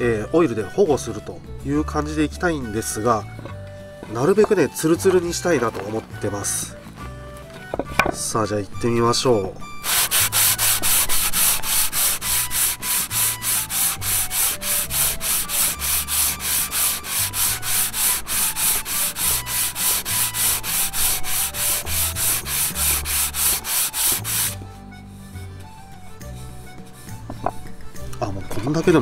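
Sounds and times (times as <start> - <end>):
sandpaper rasping on wood: 9.8 - 24.6.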